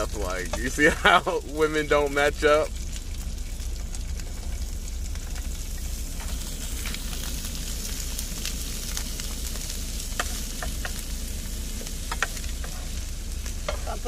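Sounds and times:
food sizzling in a skillet: 0.0s - 14.0s
spoon tapping pan: 10.2s - 11.0s.

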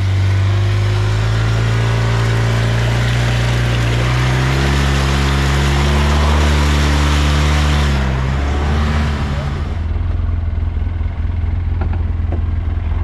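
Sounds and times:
tires splashing through mud: 0.0s - 10.3s
off-road vehicle engine under load: 0.0s - 13.0s.

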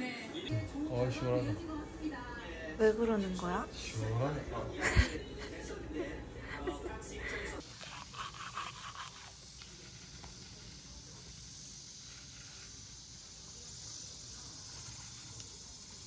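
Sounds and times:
high-pitched outdoor hiss: 7.6s - 16.0s.

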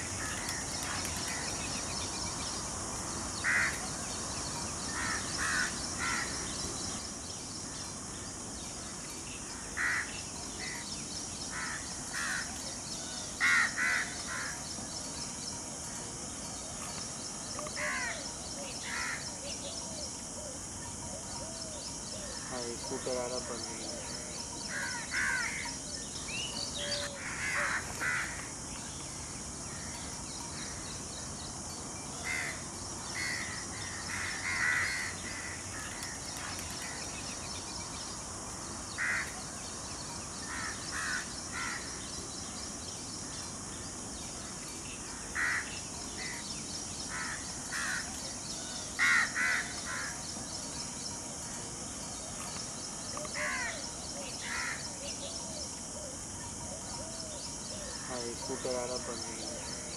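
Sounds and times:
steady high hiss: 0.0s - 59.9s
birds cawing: 3.4s - 4.0s, 4.9s - 6.6s, 9.6s - 10.8s, 11.5s - 12.5s, 13.4s - 14.6s, 18.8s - 19.2s, 24.7s - 25.8s, 26.8s - 28.5s, 33.2s - 37.0s, 38.9s - 39.4s, 40.4s - 42.0s, 45.2s - 46.4s, 47.1s - 48.1s, 48.9s - 50.3s, 54.4s - 54.8s.

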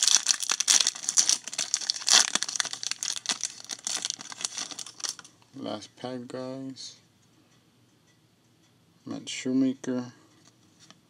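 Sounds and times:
foil wrapper crinkling: 0.0s - 5.3s.

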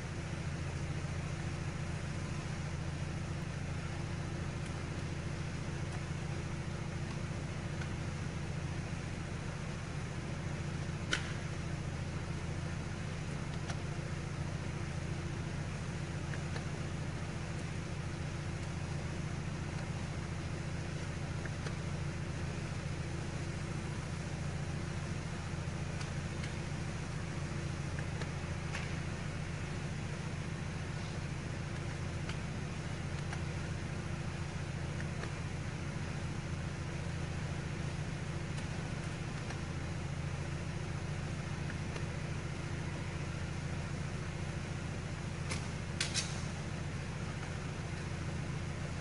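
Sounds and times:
car interior hum: 0.0s - 49.0s
sharp click: 11.0s - 11.5s, 45.4s - 46.7s.

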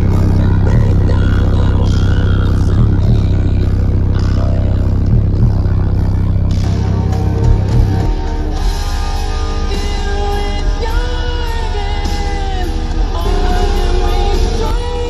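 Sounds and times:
song with heavy bass: 0.0s - 15.0s.

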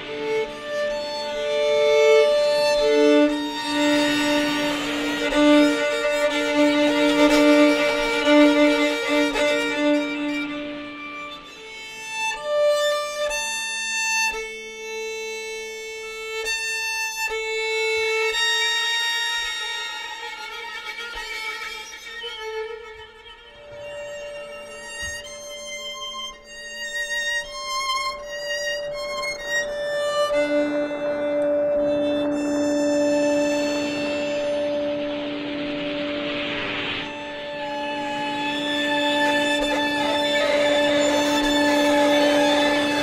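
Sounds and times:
violins playing long bowed notes: 0.0s - 43.0s.

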